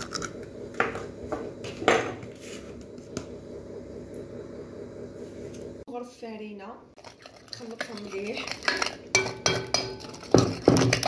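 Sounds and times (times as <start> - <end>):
steady low hum: 0.0 - 11.0
kitchen clicks and knocks: 7.8 - 11.0.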